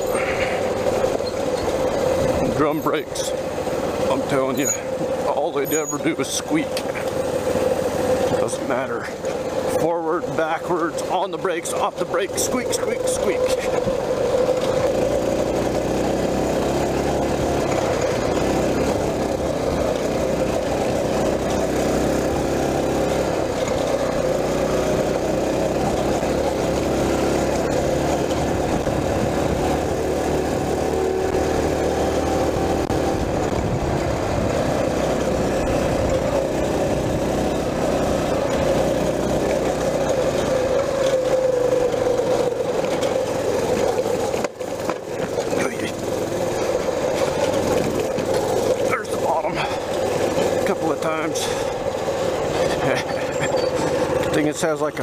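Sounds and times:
small motorbike engine running: 0.0 - 55.0
wind noise: 33.0 - 34.8.

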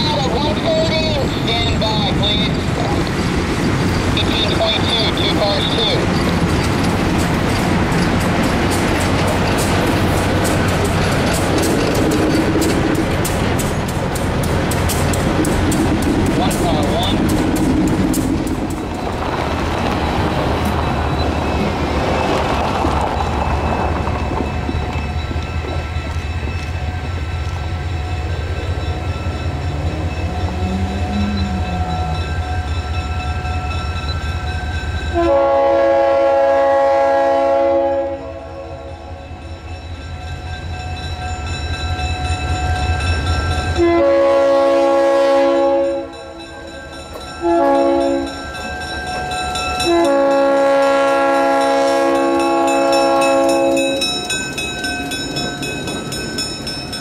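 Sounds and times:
locomotive engine rumble: 0.0 - 37.6
locomotive air horn blasts: 35.2 - 39.0, 43.8 - 46.3, 47.4 - 48.4, 49.8 - 54.0.

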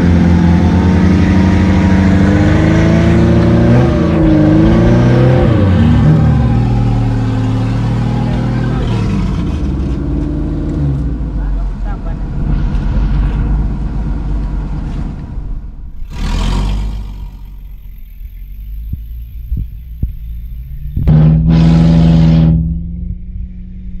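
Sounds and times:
off-road engine revving hard: 0.0 - 14.9, 16.0 - 19.6, 20.3 - 22.8
vehicle churning through mud: 0.0 - 18.2.

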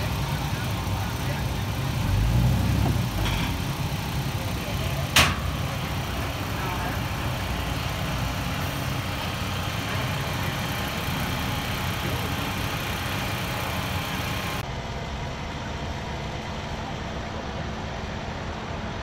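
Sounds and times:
diesel engine idling: 0.0 - 14.6.

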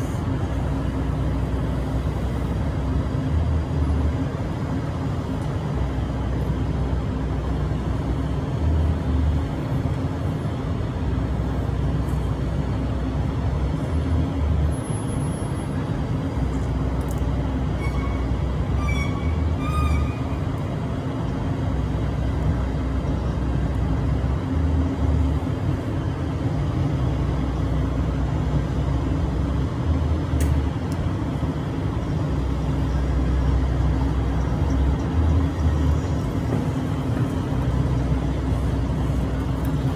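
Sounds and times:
city street traffic rumble: 0.0 - 39.9
high-pitched squeal: 17.8 - 20.5.

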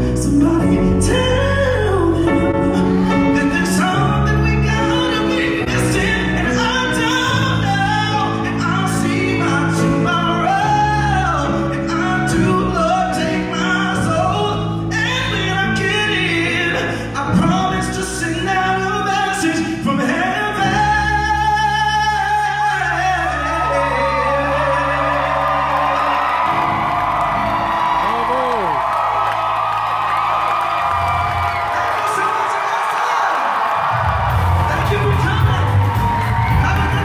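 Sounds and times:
man singing into microphone: 0.0 - 26.7, 34.8 - 37.0.

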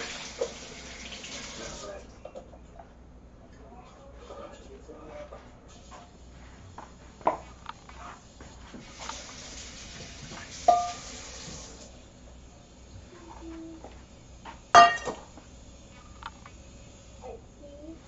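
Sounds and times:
steady hiss: 5.6 - 18.0
metal pans knocking on countertop: 10.7 - 11.0, 14.8 - 15.2
metallic clang ringing: 14.8 - 15.2.

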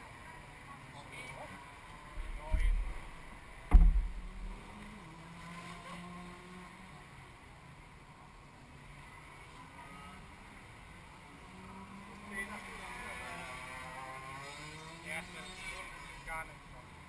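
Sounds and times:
kart engine drone: 0.0 - 17.0
heavy low thump: 2.2 - 4.6.

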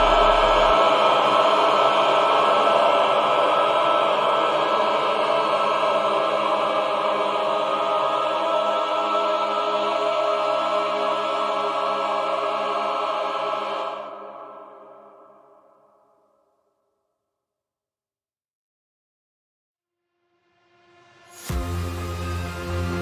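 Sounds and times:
music of sustained tones: 0.0 - 14.4, 20.7 - 23.0.

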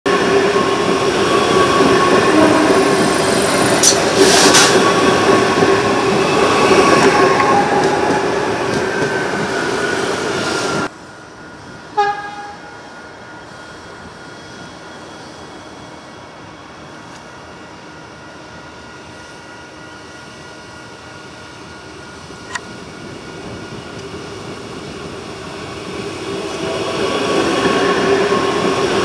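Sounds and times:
train wheels rumbling on rail: 0.1 - 29.0
train horn toot: 2.3 - 3.0, 11.9 - 12.7.

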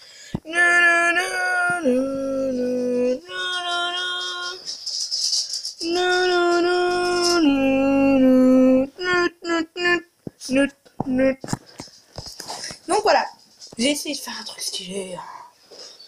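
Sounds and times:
child humming siren imitation: 0.5 - 4.6, 5.8 - 11.4.

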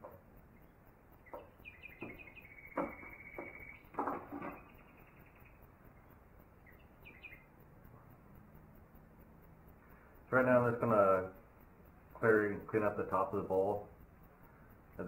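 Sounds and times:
knocks on wood: 1.3 - 4.7.

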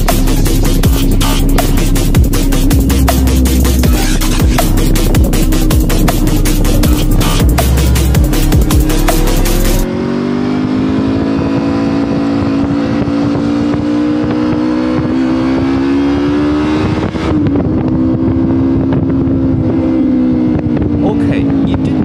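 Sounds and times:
motorcycle engine accelerating: 0.0 - 22.0
wind rush: 9.8 - 22.0.

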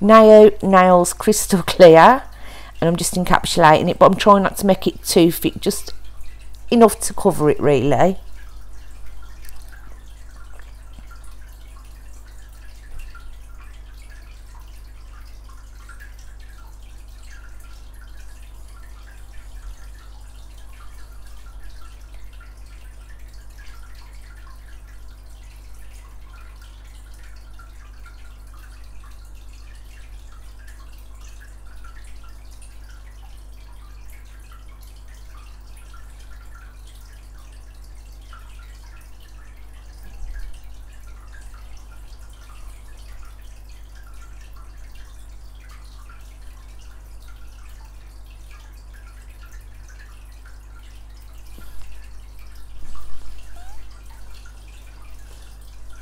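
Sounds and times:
low steady hum: 0.0 - 56.0
faint small ticks: 9.0 - 11.4.

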